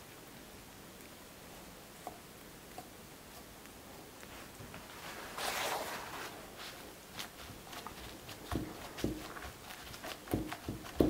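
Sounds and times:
hands patting paper towel: 0:04.3 - 0:11.0
paper towel rustling: 0:04.3 - 0:11.0.

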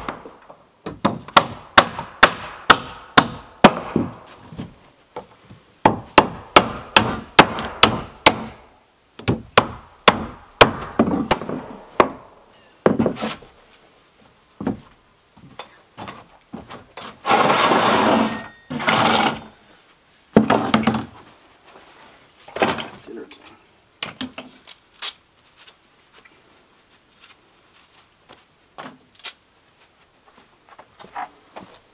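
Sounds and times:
hammer striking wooden boards: 0:00.9 - 0:04.2, 0:05.8 - 0:08.6, 0:09.2 - 0:12.3
rough scraping noise: 0:17.1 - 0:19.5.

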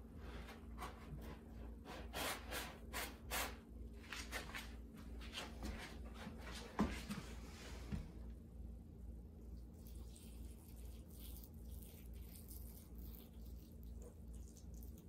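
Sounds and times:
cat scratching litter: 0:00.8 - 0:04.8.

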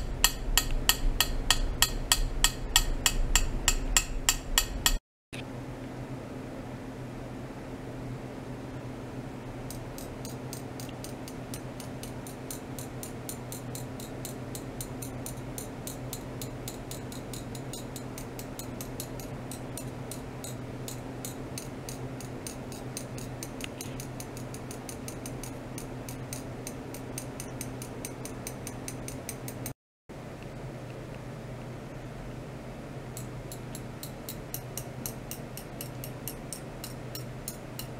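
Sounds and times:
low electrical hum: 0:00.0 - 0:37.9
rapid high-pitched ticking: 0:09.7 - 0:29.8.

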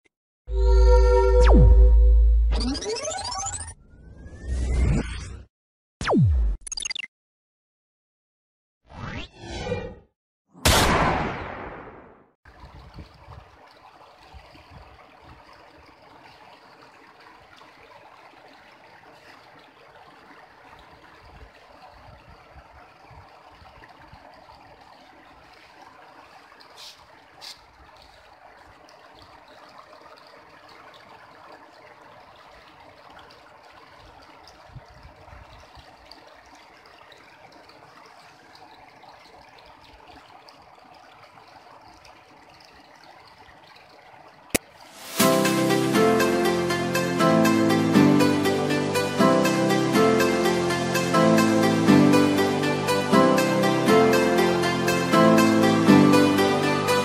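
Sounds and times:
river water flowing over stones: 0:12.5 - 0:57.0.

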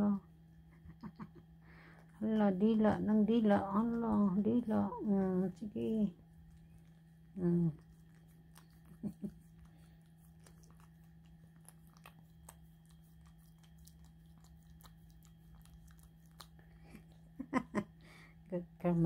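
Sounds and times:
low hum: 0:00.0 - 0:19.0
dog licking wet smacking: 0:06.4 - 0:17.4.

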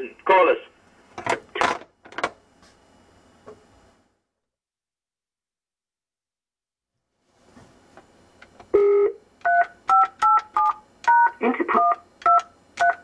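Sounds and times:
telephone keypad beeps: 0:08.8 - 0:13.0.

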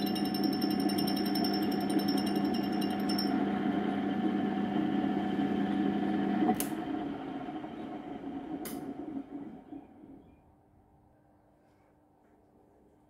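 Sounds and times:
grinder motor humming: 0:00.0 - 0:07.9.

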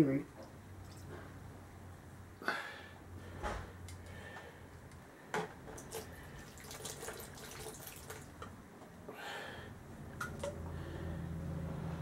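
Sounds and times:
water trickling and dripping: 0:05.8 - 0:08.5.

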